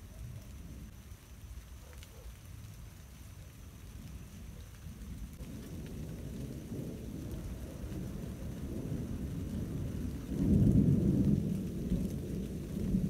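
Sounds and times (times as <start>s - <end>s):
thunder rumbling: 3.6s - 13.0s.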